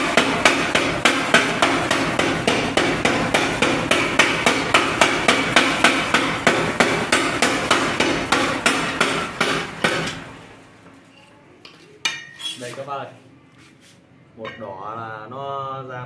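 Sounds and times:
power hammer pounding steel: 0:00.0 - 0:10.5.

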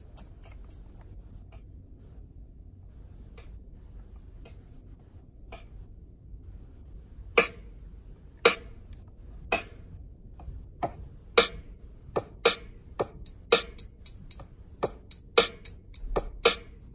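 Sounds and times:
sampled drum hits: 0:12.5 - 0:16.7.

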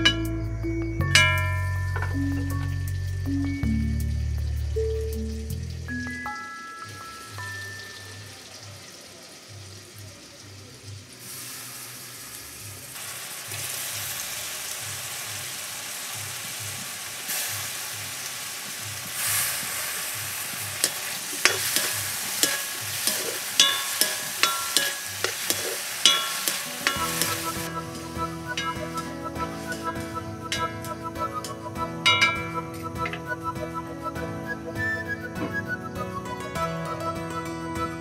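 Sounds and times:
mushrooms sizzling in hot oil: 0:01.4 - 0:33.4
ladle clinking and scraping pan: 0:20.8 - 0:33.2.

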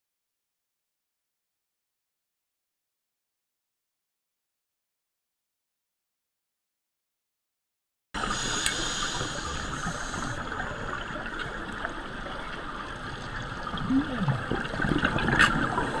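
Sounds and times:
water sloshing and gurgling: 0:08.2 - 0:16.0.

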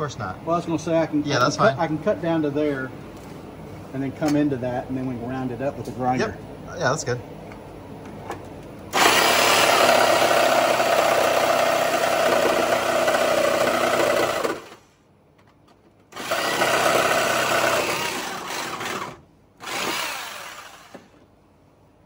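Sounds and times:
electric saw cutting sheet metal: 0:09.0 - 0:14.8, 0:16.2 - 0:21.1.

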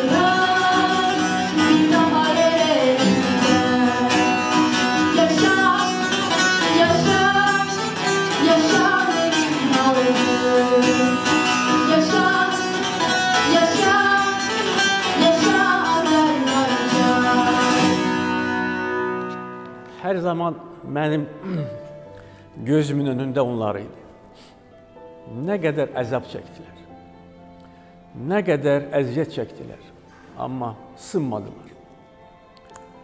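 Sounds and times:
woman singing: 0:00.0 - 0:18.6
plucked lute: 0:00.0 - 0:20.0
acoustic guitar: 0:00.0 - 0:25.5.

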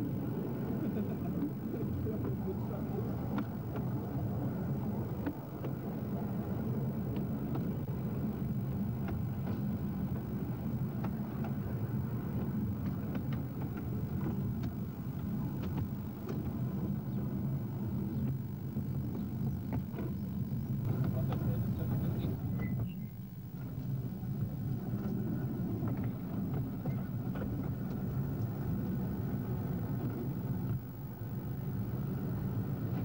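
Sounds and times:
miniature tram humming: 0:00.0 - 0:33.0
light clicks from track: 0:03.3 - 0:03.9, 0:12.4 - 0:16.6.

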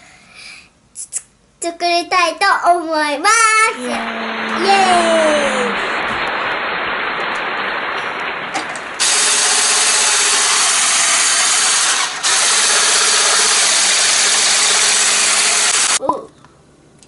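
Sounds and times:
electric hand mixer whirring: 0:03.8 - 0:05.8, 0:09.0 - 0:16.0.

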